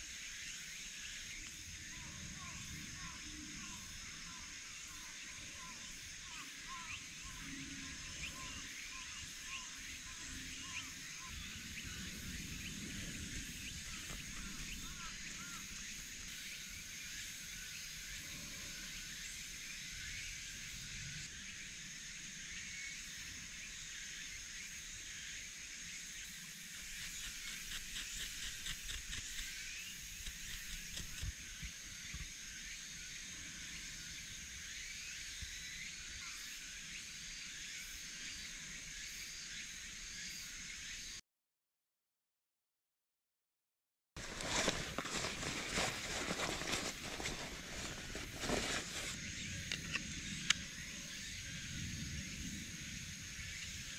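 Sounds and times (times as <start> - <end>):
twine rustling and scraping: 44.2 - 49.2.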